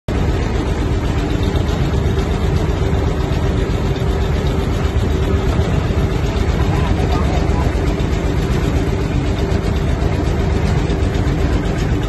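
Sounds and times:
motor running: 0.1 - 12.0.

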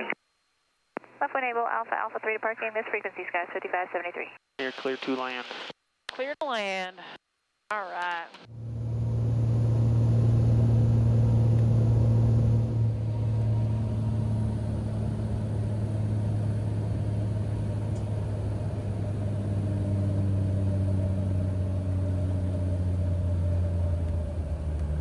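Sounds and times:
propeller plane engine droning: 8.4 - 25.0.

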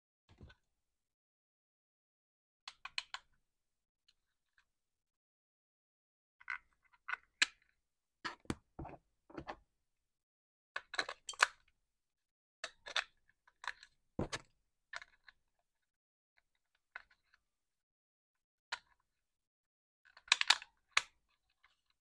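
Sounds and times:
plastic clicks and knocks: 8.3 - 9.6, 14.2 - 14.5.

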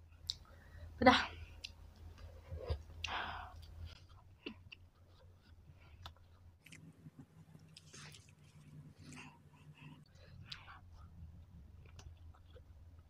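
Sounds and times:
person chewing: 1.6 - 13.0.

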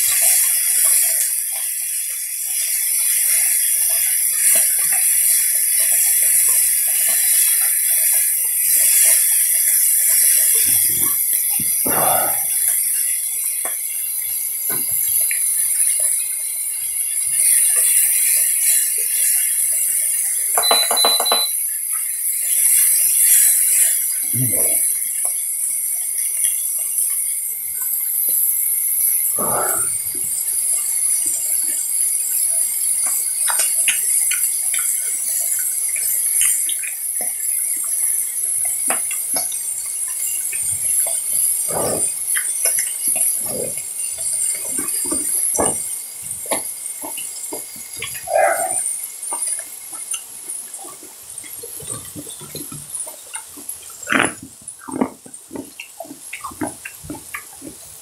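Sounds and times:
meat sizzling on griddle: 0.0 - 58.0
ringing clink: 20.6 - 21.6.

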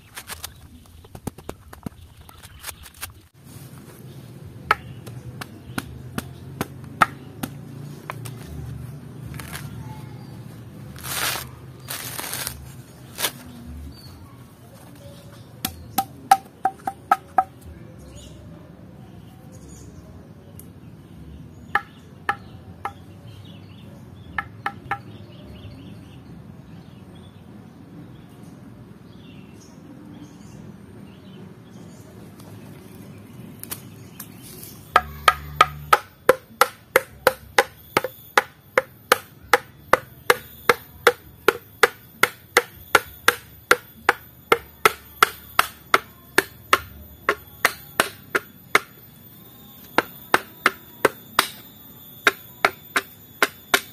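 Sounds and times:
coconut husk fibres tearing: 8.2 - 9.9, 10.9 - 13.7
stone tool knocking on coconut: 15.6 - 17.6, 34.9 - 49.0, 49.8 - 53.9.

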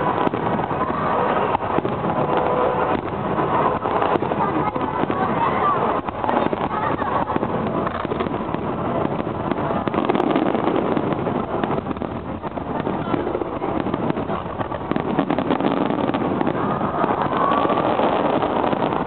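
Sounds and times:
fireworks crackling: 0.0 - 19.0.

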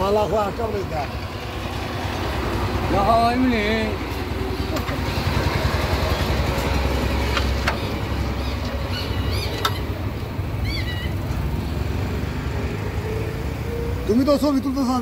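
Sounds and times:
diesel engine chugging: 0.0 - 11.6.

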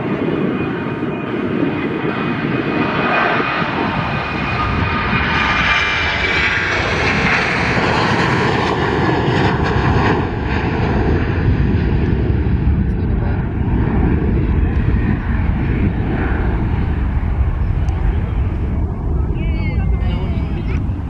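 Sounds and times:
jet engines roaring at takeoff: 0.0 - 21.0.

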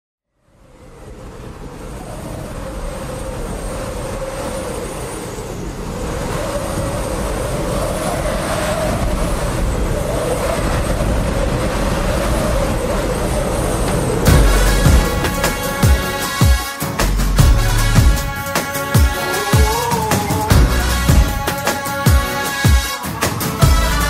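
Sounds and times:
rumbling rushing noise: 1.1 - 24.0
wavering hum: 3.2 - 24.0.

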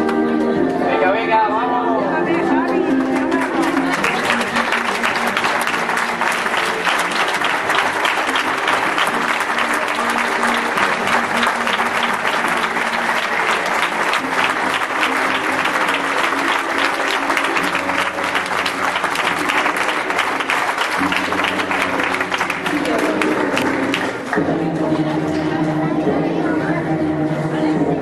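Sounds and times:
music playing: 0.0 - 28.0
audience applauding: 2.9 - 24.4.

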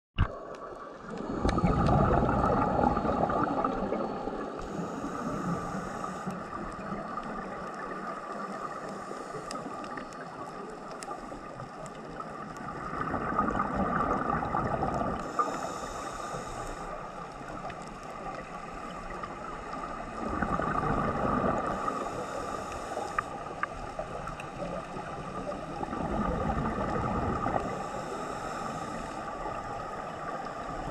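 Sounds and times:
exhaled bubbles rushing: 0.2 - 8.8, 12.2 - 15.3, 17.4 - 22.0, 24.0 - 27.8
regulator hiss on inhale: 4.4 - 12.5, 15.2 - 20.3, 21.1 - 25.8, 26.8 - 30.9.

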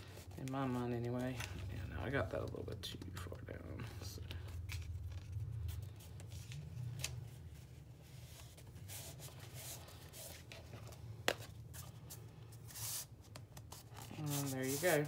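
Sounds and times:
low steady hum: 0.0 - 15.0
hands rubbing fabric on book: 11.7 - 15.0.

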